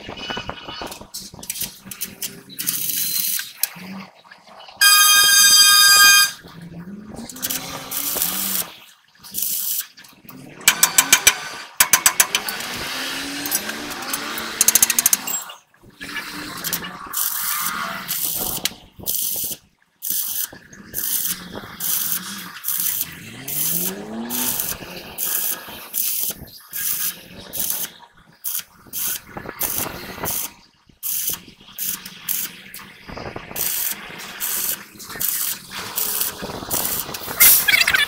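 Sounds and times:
welding arc crackling: 0:00.0 - 0:03.8, 0:07.4 - 0:09.8, 0:18.1 - 0:38.0.

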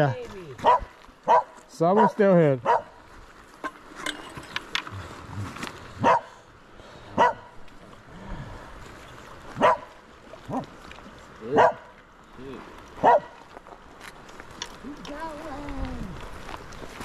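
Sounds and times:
dog barking: 0:00.6 - 0:02.9, 0:06.0 - 0:06.3, 0:07.2 - 0:07.5, 0:09.6 - 0:09.9, 0:11.5 - 0:11.9, 0:13.0 - 0:13.4.

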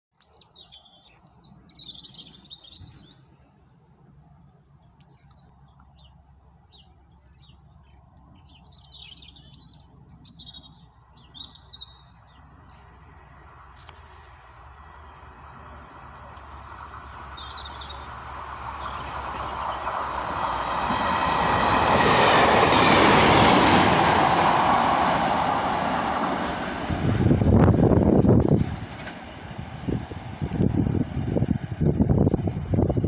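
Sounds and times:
songbirds twittering: 0:00.2 - 0:23.6
low outdoor rumble: 0:25.6 - 0:33.0.

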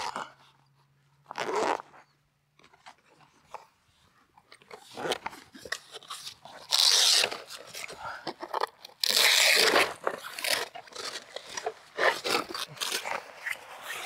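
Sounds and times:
zipper pulled open: 0:00.0 - 0:00.4, 0:01.2 - 0:02.2, 0:06.5 - 0:07.9, 0:08.9 - 0:14.0.

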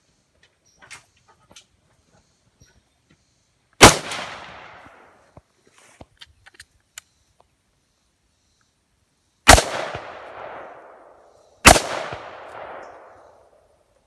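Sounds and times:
rifle shots with echo: 0:03.8 - 0:05.1, 0:09.5 - 0:13.7.

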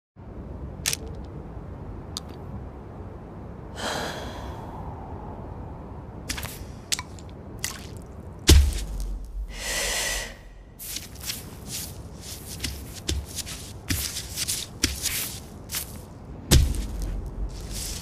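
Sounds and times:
steady low rumble: 0:00.2 - 0:18.0
person breathing out: 0:03.7 - 0:05.0, 0:09.5 - 0:10.6
heavy thump: 0:16.5 - 0:17.2.

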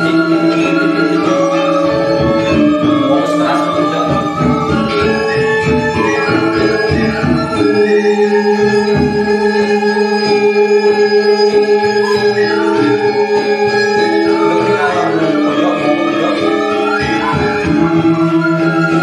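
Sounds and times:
gamelan music: 0:00.0 - 0:19.0.

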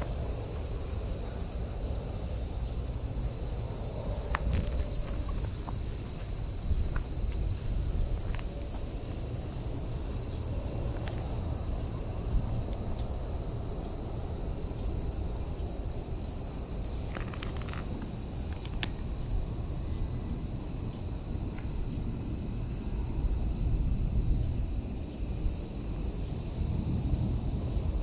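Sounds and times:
high-pitched insect drone: 0:00.0 - 0:28.0
wind rumble on microphone: 0:00.0 - 0:28.0
faint clicks: 0:17.1 - 0:19.0.

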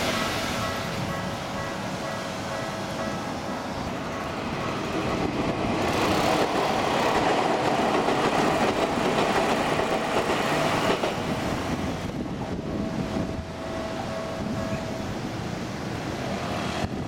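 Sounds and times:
electric train passing: 0:00.0 - 0:17.0
level crossing warning bell: 0:00.5 - 0:03.9.

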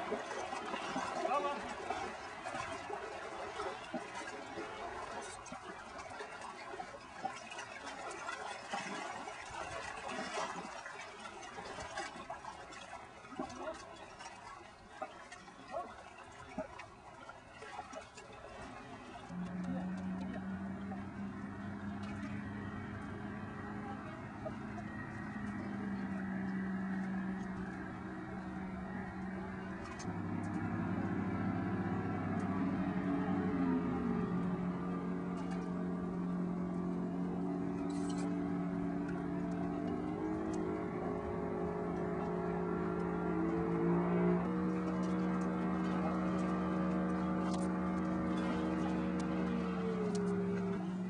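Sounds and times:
swimmer splashing water: 0:00.0 - 0:51.0
motor engine running: 0:19.3 - 0:51.0.

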